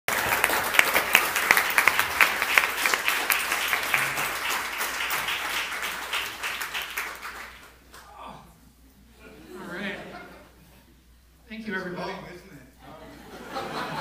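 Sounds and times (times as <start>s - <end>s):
audience applauding: 0.1s - 8.1s.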